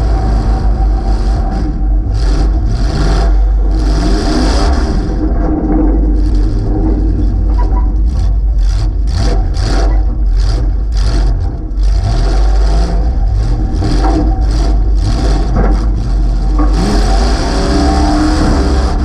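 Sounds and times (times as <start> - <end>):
loud engine revving: 0.0 - 19.0.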